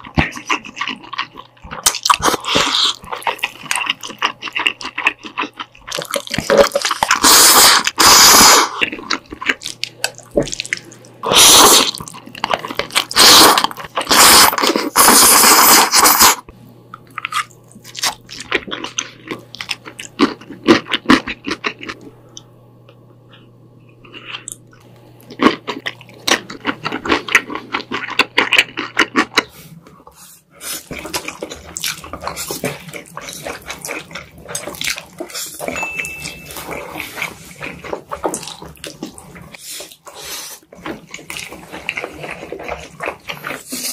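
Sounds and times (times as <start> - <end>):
chewing with wet mouth clicks: 0.0 - 7.3, 8.8 - 11.2, 24.1 - 29.5, 30.8 - 43.9
loud noodle slurping: 6.5 - 8.9, 11.2 - 12.0, 13.0 - 16.5.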